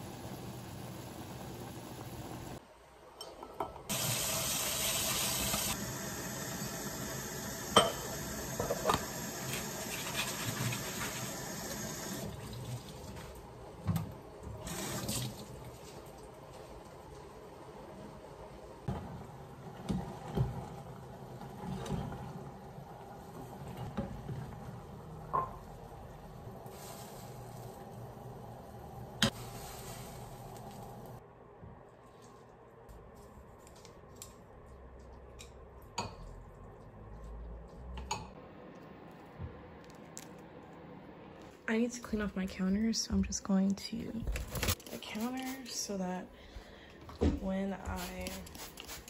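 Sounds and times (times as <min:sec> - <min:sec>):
pot of water boiling: 0:00.0 - 0:02.6, 0:03.9 - 0:31.2.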